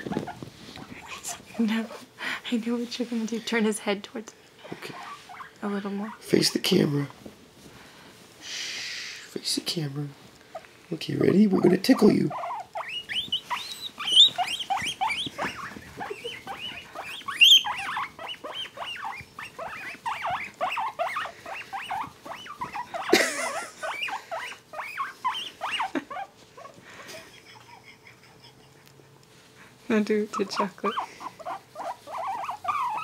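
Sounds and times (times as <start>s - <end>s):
guinea pigs squeaking: 0.0s - 2.7s, 4.6s - 7.2s, 10.5s - 26.8s, 29.9s - 33.0s.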